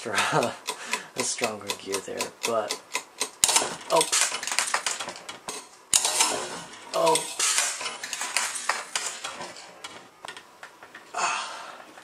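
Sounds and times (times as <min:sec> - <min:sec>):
gear train clattering ticks: 0:00.3 - 0:05.3.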